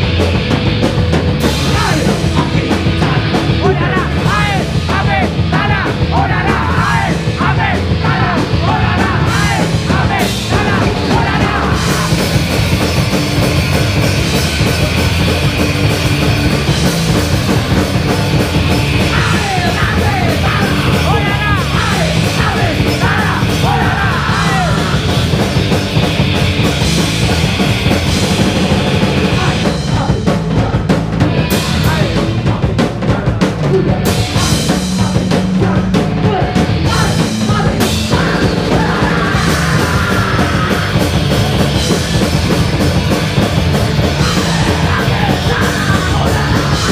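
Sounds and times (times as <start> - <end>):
punk rock band playing: 0.0 - 46.9
shouted vocals into microphone: 1.7 - 12.3, 19.1 - 25.2, 35.0 - 41.1, 44.3 - 46.9.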